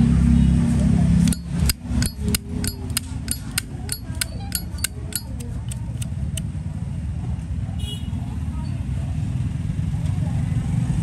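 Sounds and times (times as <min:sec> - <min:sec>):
lighter lid clicking: 0:01.3 - 0:06.1.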